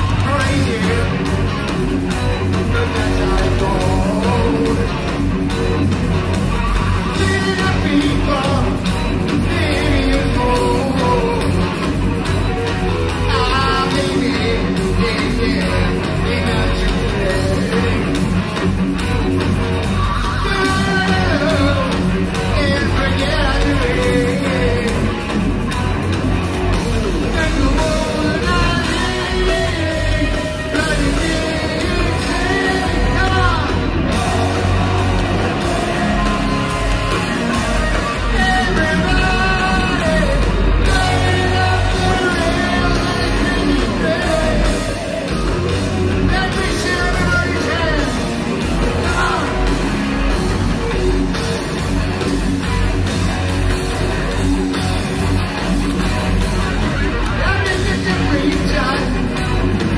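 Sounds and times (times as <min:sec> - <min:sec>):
man singing: 0:00.0 - 0:01.5, 0:02.4 - 0:05.2, 0:07.1 - 0:11.8, 0:13.2 - 0:18.3, 0:20.0 - 0:25.1, 0:27.2 - 0:45.2, 0:46.2 - 0:48.2, 0:48.8 - 0:49.7, 0:57.4 - 0:59.9
drums: 0:00.0 - 0:59.9
electric guitar: 0:00.0 - 0:59.9.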